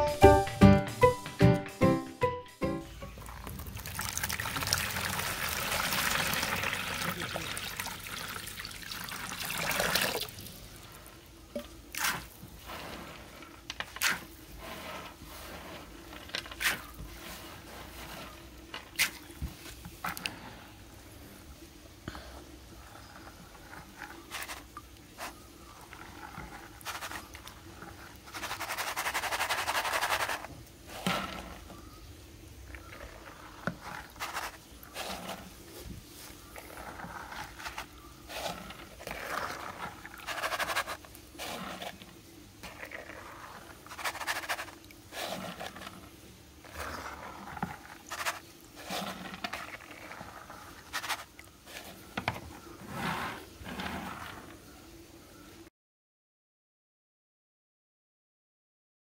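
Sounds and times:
water splashing in plastic basin: 0:03.2 - 0:10.8.

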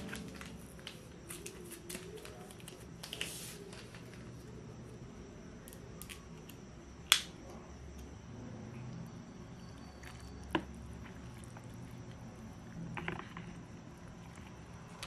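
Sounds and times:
wooden chopsticks snapping: 0:07.1 - 0:07.3
noodles squishing and dripping: 0:08.8 - 0:15.0.

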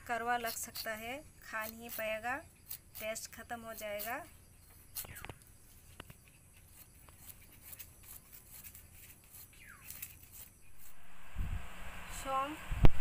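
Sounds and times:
blade slicing ginger: 0:00.3 - 0:05.4, 0:06.6 - 0:11.0.

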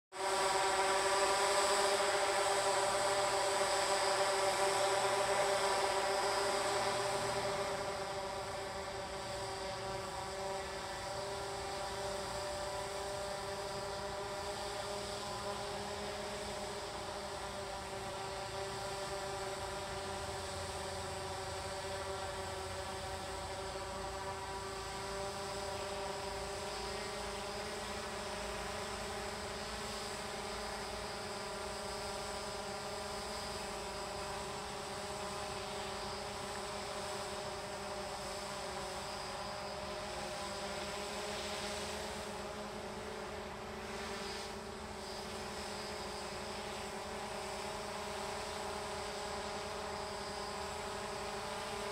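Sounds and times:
drone propeller buzz: 0:00.2 - 0:51.9.

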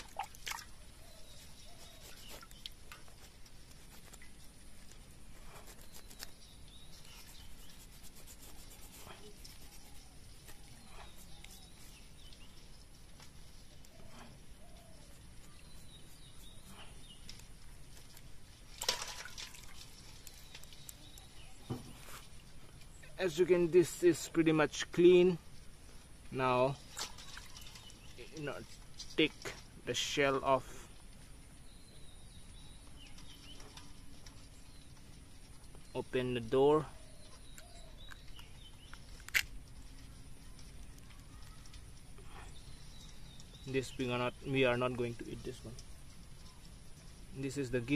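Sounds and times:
scrubber scraping crab shell: 0:05.3 - 0:12.1.

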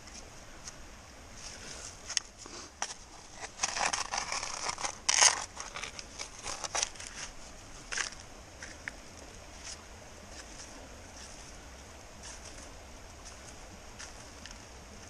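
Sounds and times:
tool scraping gravel: 0:01.4 - 0:08.9.

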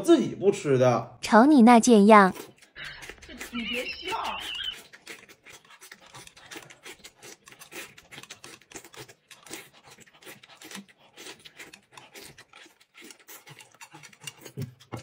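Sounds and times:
slurping and chewing: 0:01.9 - 0:15.0.

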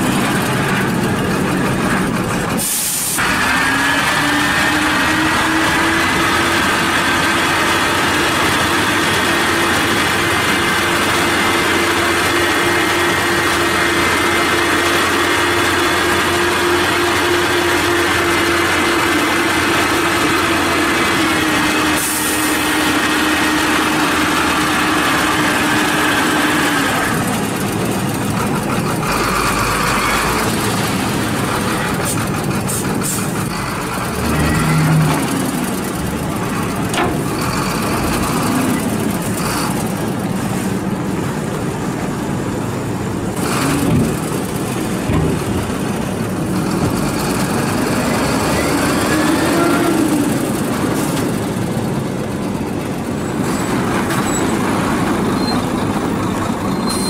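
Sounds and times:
engine knocks: 0:00.0 - 0:02.6, 0:23.8 - 0:41.1, 0:43.2 - 0:49.6
diesel truck engine running: 0:00.0 - 0:57.0.

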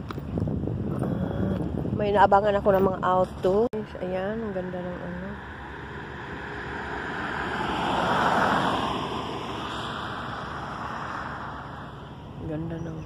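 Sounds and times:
car passing by: 0:03.8 - 0:12.4.

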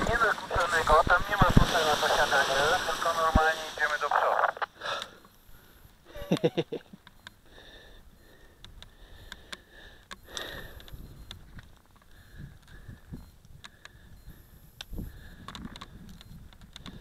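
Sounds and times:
person breathing hard and sniffing: 0:07.4 - 0:11.1
clicks and rustles of lines: 0:08.6 - 0:14.0, 0:14.8 - 0:17.0.

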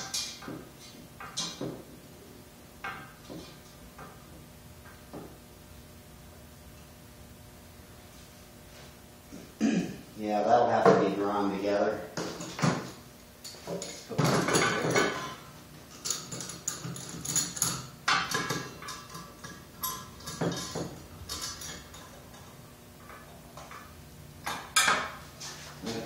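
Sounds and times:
metal clamps clanking and rattling: 0:13.6 - 0:22.5.

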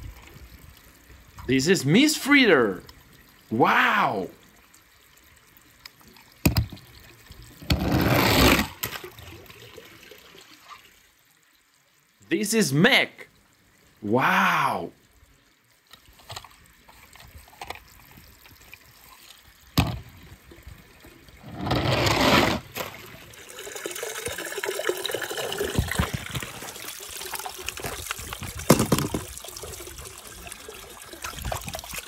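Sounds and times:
water sloshing in a pool: 0:00.0 - 0:12.2, 0:15.0 - 0:32.0.

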